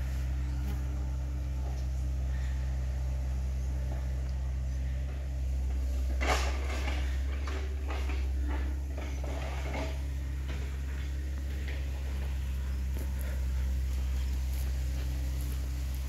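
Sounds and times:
steady low drone: 0.0s - 16.0s
footsteps on mud and branches: 9.9s - 16.0s.

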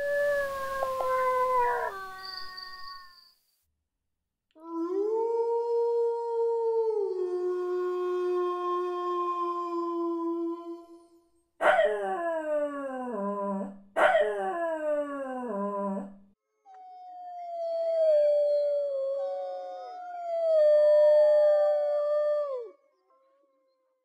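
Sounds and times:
dogs howling: 0.0s - 3.0s.

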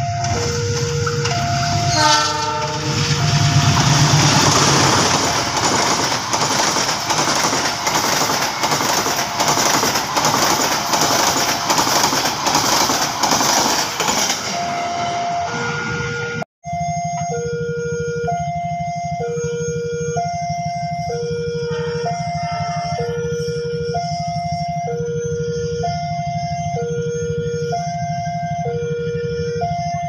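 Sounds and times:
locomotive horn: 0.0s - 5.4s, 14.5s - 16.5s, 21.0s - 24.0s
train rushing past: 0.0s - 16.4s
wheels clattering over rail joints: 0.2s - 14.6s.

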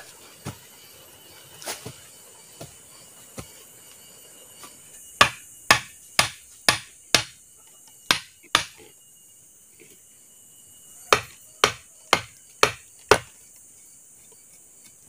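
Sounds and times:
machete striking wooden stake: 5.2s - 7.4s, 8.1s - 8.8s, 11.1s - 13.3s.

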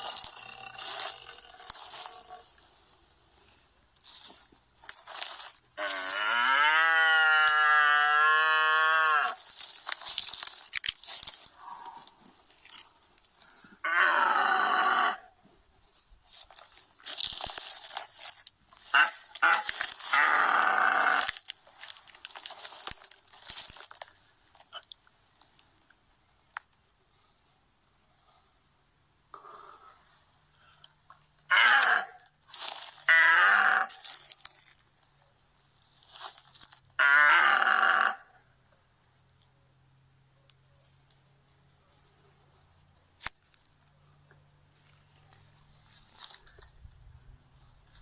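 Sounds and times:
crunching rustle: 0.0s - 28.1s, 29.6s - 37.8s, 40.5s - 48.0s
cow mooing: 5.8s - 9.4s, 13.8s - 15.3s.

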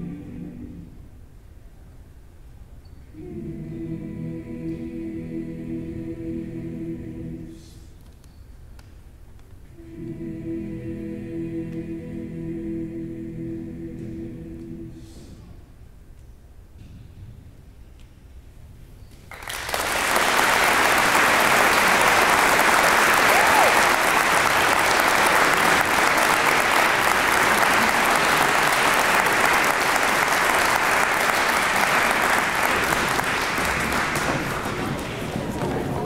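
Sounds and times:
audience applauding: 19.3s - 36.0s.

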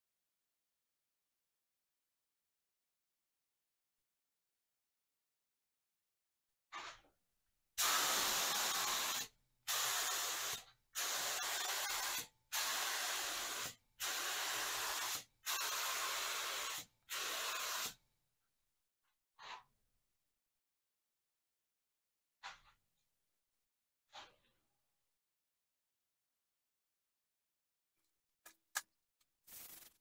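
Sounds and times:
spray gun hissing: 7.8s - 18.0s.

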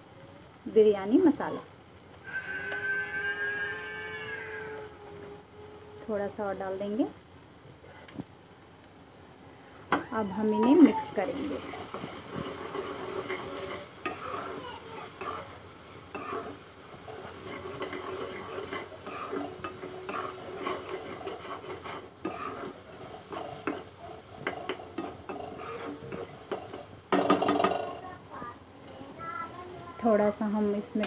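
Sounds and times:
masala sizzling: 0.0s - 31.0s
spatula scraping a pan: 2.2s - 5.4s, 10.4s - 28.1s.

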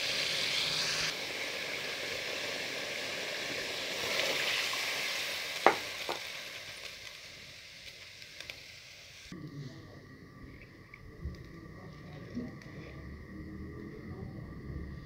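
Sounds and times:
food sizzling in a pot: 0.0s - 9.4s.

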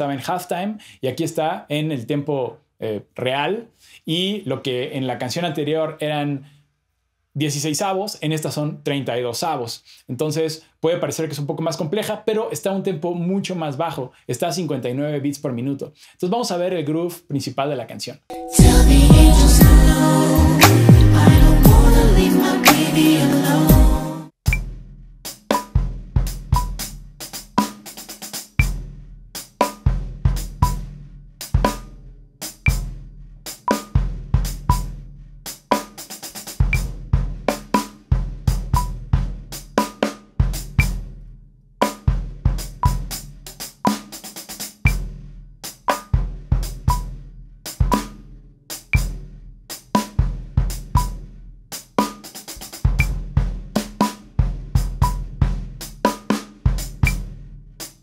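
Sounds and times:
drum kit playing slow groove: 18.3s - 41.1s, 41.8s - 58.0s.

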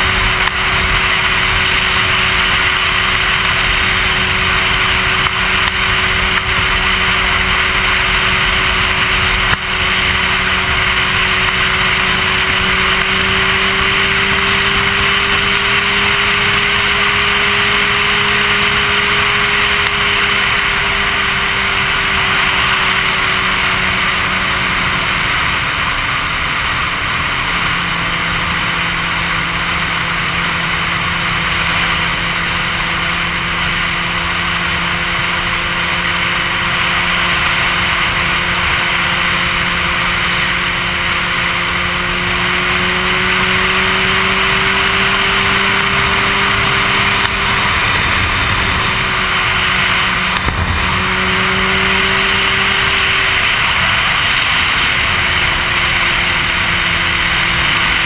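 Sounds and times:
motorcycle engine cruising: 0.0s - 58.0s
wind rushing on microphone: 45.4s - 58.0s.

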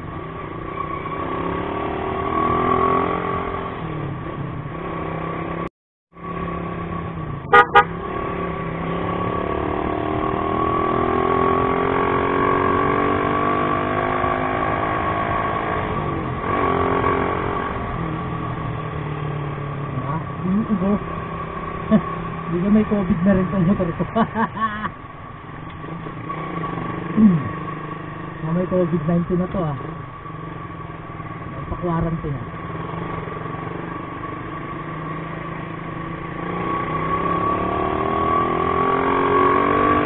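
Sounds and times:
motorcycle engine accelerating: 0.0s - 40.0s
traffic noise: 0.0s - 40.0s
vehicle horn beeps: 7.5s - 8.0s.

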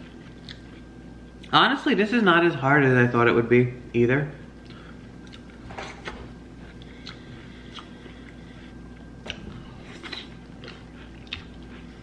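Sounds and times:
quiet chewing: 0.0s - 1.5s, 4.6s - 5.6s, 6.6s - 12.0s.

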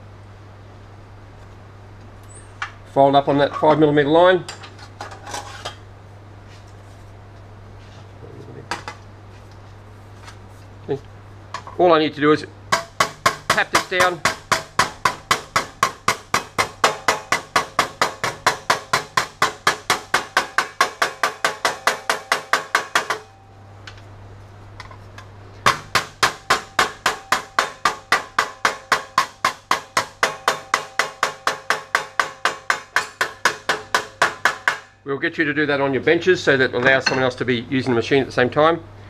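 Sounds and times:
hammer tapping sheet metal: 12.7s - 23.4s, 25.6s - 35.0s.

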